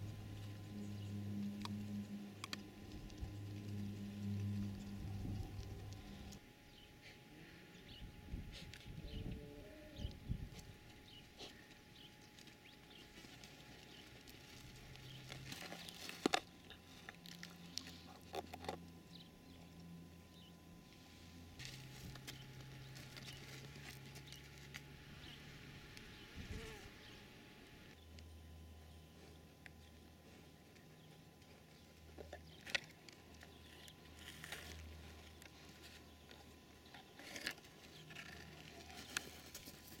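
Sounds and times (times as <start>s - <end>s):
low steady hum: 0.0s - 40.0s
scratching and rustling in dirt: 10.0s - 19.8s, 20.9s - 27.1s, 28.9s - 40.0s.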